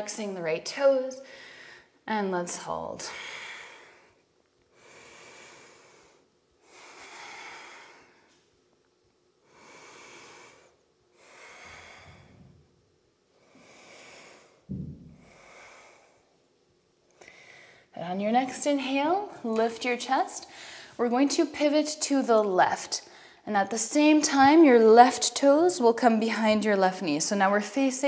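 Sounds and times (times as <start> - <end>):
woman breathing deeply: 1.2 - 2.0, 3.0 - 8.4, 9.4 - 12.7, 13.3 - 16.4, 17.1 - 18.0, 20.4 - 21.0.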